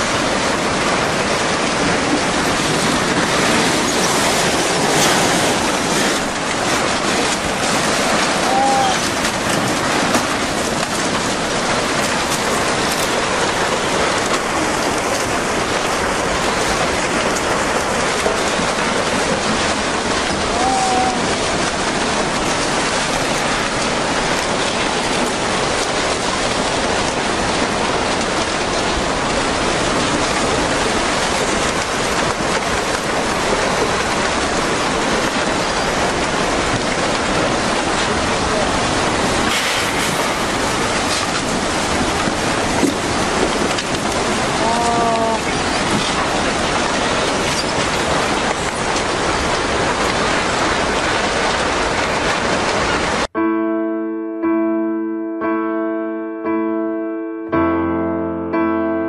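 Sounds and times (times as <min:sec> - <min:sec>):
rushing water: 0:00.0 - 0:53.4.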